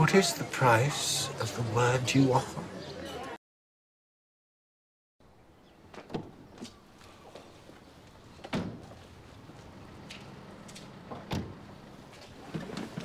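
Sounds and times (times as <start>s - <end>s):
faint outdoor hum: 5.2s - 13.0s.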